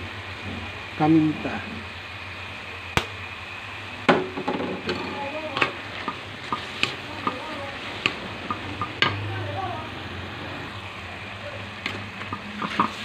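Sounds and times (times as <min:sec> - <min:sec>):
food sizzling in a wok: 0:00.0 - 0:13.0
spatula knocking and scraping wok: 0:04.0 - 0:09.3.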